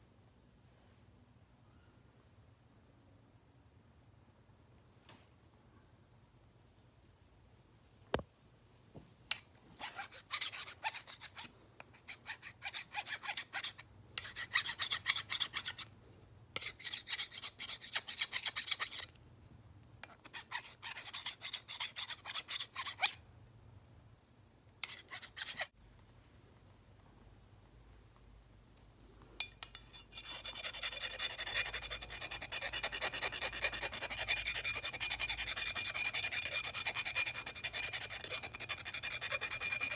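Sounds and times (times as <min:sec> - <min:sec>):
metal file rasping on blade: 0:09.3 - 0:15.9, 0:16.6 - 0:19.2, 0:20.0 - 0:23.2, 0:24.8 - 0:25.7, 0:29.7 - 0:39.9.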